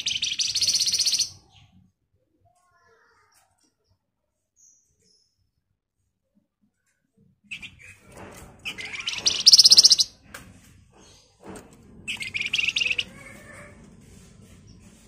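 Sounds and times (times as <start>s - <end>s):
bird call notes: 0.0s - 1.3s, 8.8s - 10.1s
bird buzzy rattling trills: 0.0s - 1.4s, 7.5s - 10.2s, 12.0s - 13.6s.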